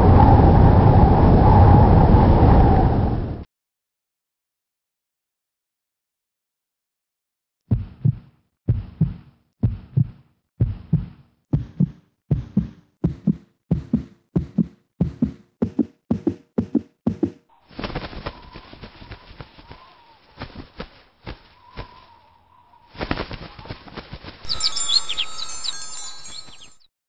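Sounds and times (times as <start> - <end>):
wind noise rushing: 0.0 - 3.4
heartbeat thumping: 7.7 - 17.4
crackles: 17.7 - 22.3
faint wavering whistle: 24.5 - 26.9.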